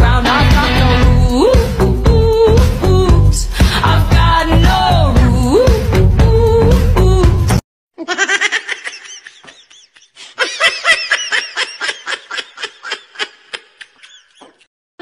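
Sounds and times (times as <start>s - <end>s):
high-pitched giggling: 8.0s - 14.7s.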